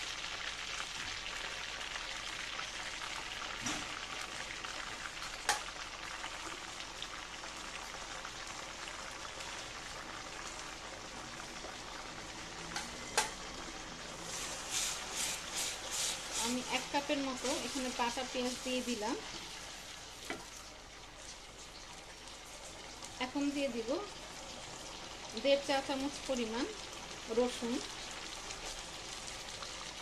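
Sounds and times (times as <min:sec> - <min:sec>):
paste sizzling in oil: 0:13.0 - 0:20.6, 0:22.4 - 0:30.0.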